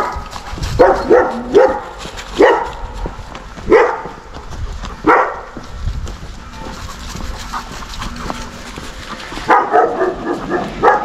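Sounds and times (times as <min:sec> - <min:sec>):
dog barking: 0:00.8 - 0:03.0, 0:03.7 - 0:04.2, 0:05.0 - 0:05.6, 0:09.4 - 0:11.0.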